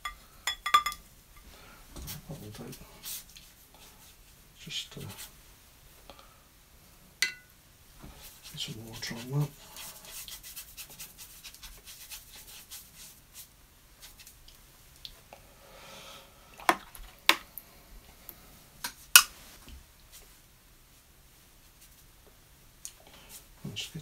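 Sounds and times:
brush clinking on ceramic: 0.0s - 1.0s, 7.2s - 7.5s
paintbrush scrubbing: 8.2s - 14.4s.

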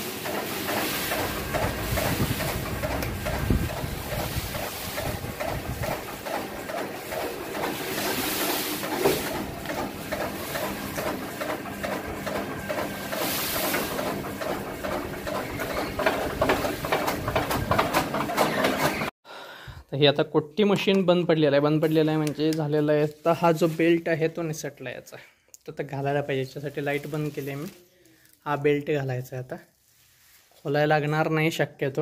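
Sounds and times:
blades chopping fodder clatter: 0.0s - 19.1s
motor hum: 0.1s - 19.1s.

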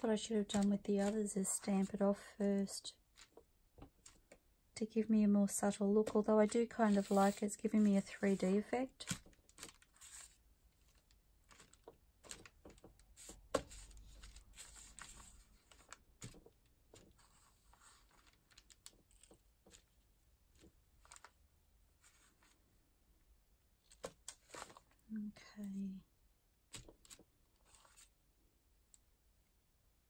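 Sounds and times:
rice paper handling: 6.0s - 19.9s, 20.6s - 21.4s, 26.7s - 28.1s.

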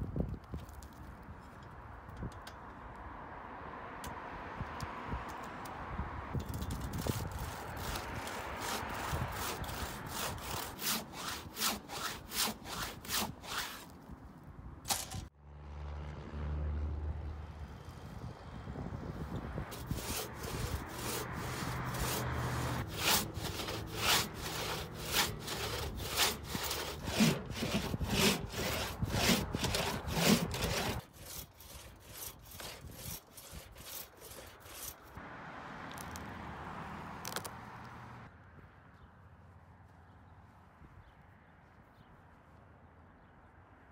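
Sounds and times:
hand saw cutting a log: 6.6s - 14.0s, 19.7s - 35.2s.

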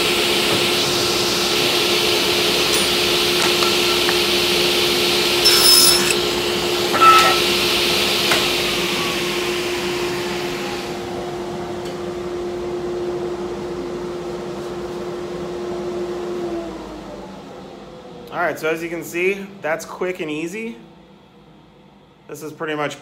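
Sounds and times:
table saw motor winding down: 2.6s - 6.3s.

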